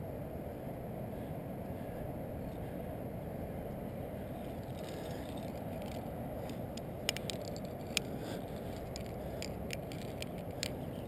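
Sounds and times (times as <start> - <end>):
wind on microphone: 0.0 - 11.0
metal climbing gear clicking: 4.4 - 11.0.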